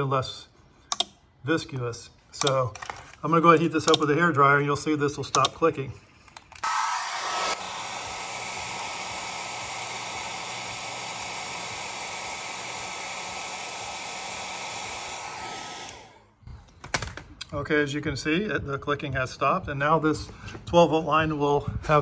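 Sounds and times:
hair dryer blowing with whine: 6.6s - 16.4s.

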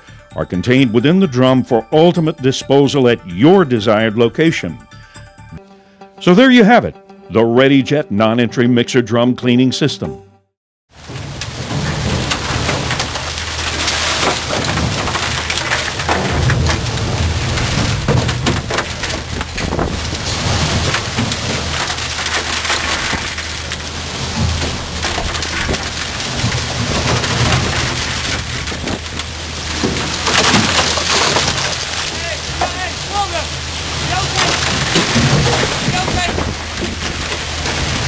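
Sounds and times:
concrete cracking and clattering: 11.0s - 38.0s.

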